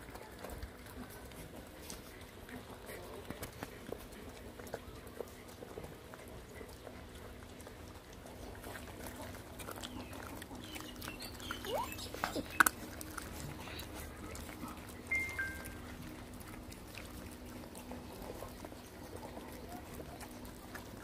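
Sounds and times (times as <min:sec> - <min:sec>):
puppies chewing and lapping: 0:00.0 - 0:21.0
puppy whining: 0:08.9 - 0:17.8.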